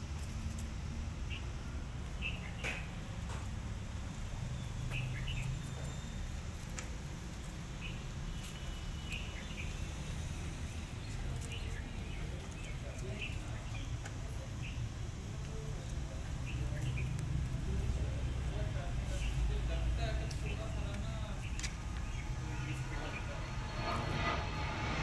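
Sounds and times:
small birds chirping: 0.2s - 25.0s
low background rumble: 9.0s - 25.0s.

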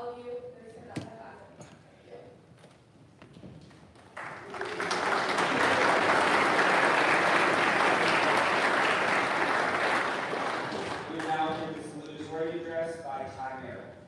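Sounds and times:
audience applauding: 4.0s - 12.1s.

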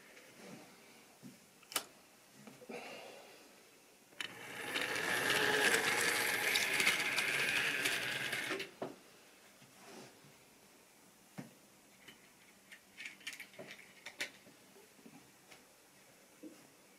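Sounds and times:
model train wheels rattling: 4.2s - 8.7s
small motor whine: 4.2s - 8.7s.

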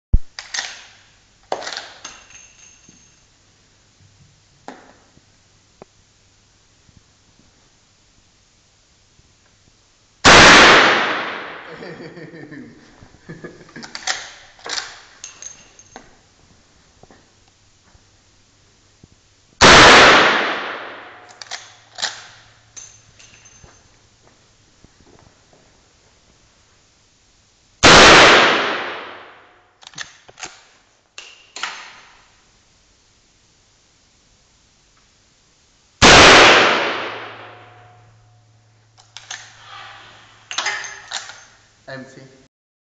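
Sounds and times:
rifle action clicking: 0.4s - 0.9s, 21.3s - 22.4s
metallic ring: 2.0s - 3.4s, 15.2s - 16.2s, 22.7s - 24.0s
loud echoing rifle gunshot: 10.2s - 11.7s, 19.6s - 21.3s, 27.8s - 29.5s, 36.0s - 37.9s.

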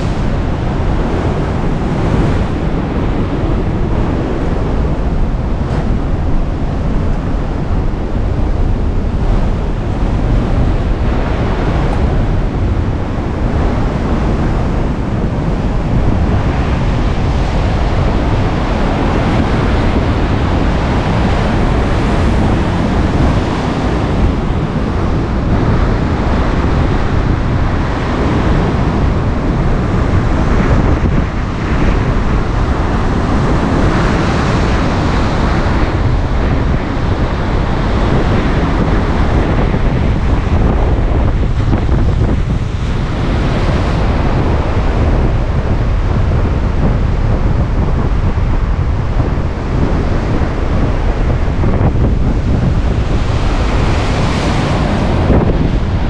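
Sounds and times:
wind buffeting microphone: 0.0s - 56.0s.

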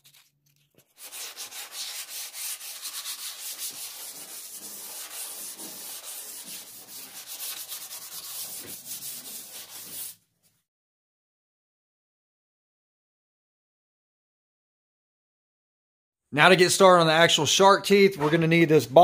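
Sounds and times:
hand sanding metal: 0.8s - 10.2s.

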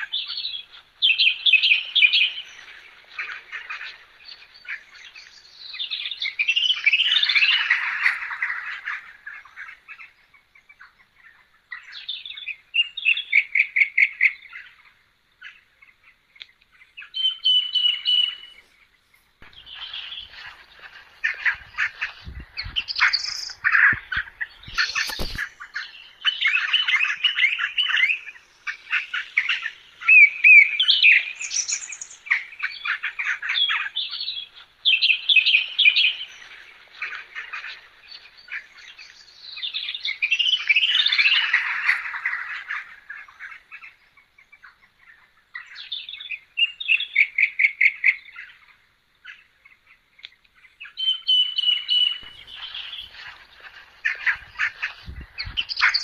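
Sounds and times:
birds chirping: 0.0s - 56.0s.

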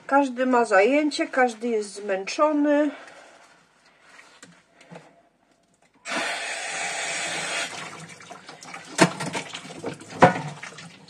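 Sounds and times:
tap water running into sink: 7.1s - 11.0s.

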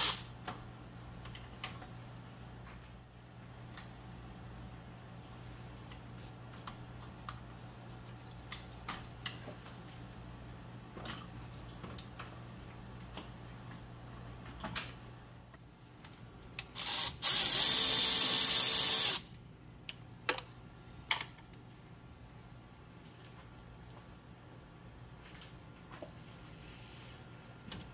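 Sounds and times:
power tool running: 16.8s - 19.3s.

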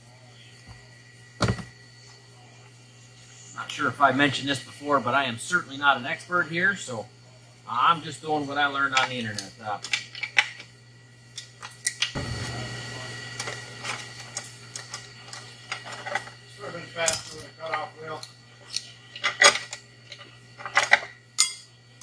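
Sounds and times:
metal parts clinking and knocking: 18.7s - 21.6s.

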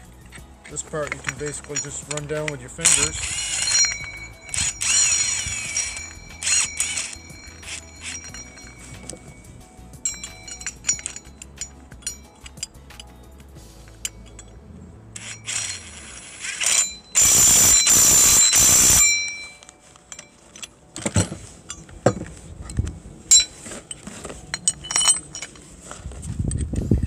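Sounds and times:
metallic clinks of steel parts: 0.0s - 26.8s
impact wrench hammering: 0.8s - 9.4s, 16.5s - 19.5s.

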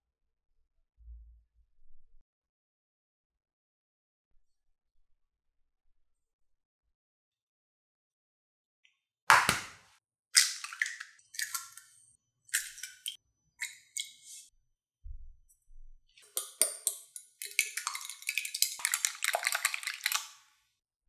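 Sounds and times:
eggshell crackling: 10.4s - 11.9s, 12.5s - 14.4s, 16.2s - 20.4s
whisk clicking against glass: 16.2s - 20.3s.

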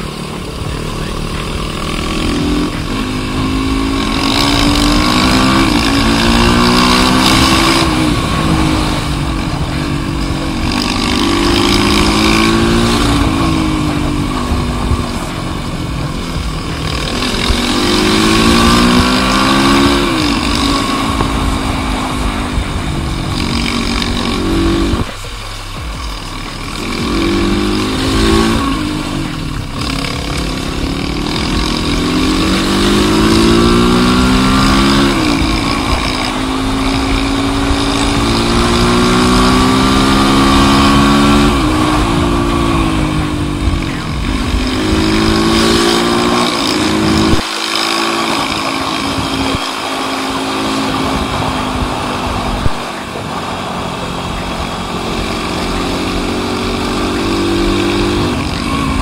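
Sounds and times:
wind noise: 0.0s - 30.0s, 48.0s - 59.0s
motorcycle engine at full throttle: 0.0s - 59.0s.

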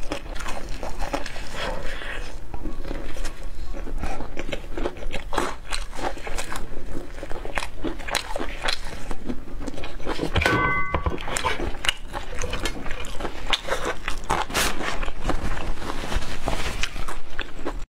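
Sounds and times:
crunchy chewing: 0.0s - 10.4s, 11.2s - 17.8s
brief high tone: 10.4s - 11.3s.

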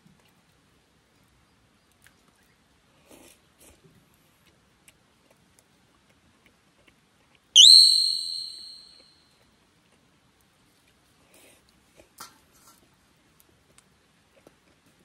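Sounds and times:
rising high ringing tone: 7.6s - 9.0s.

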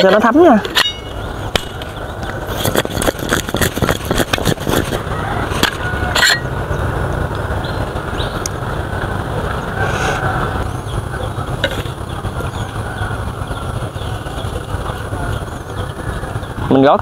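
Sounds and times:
sharp metallic knocks: 0.0s - 2.0s.

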